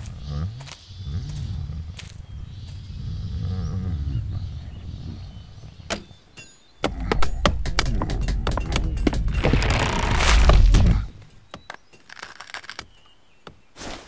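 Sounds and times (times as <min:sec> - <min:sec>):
low creature-like grumble: 0:00.0 - 0:05.8.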